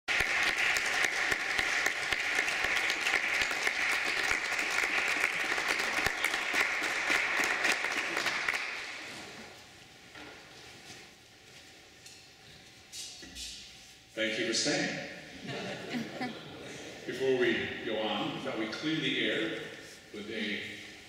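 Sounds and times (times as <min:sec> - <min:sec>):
audience applauding: 0:00.1 - 0:09.0.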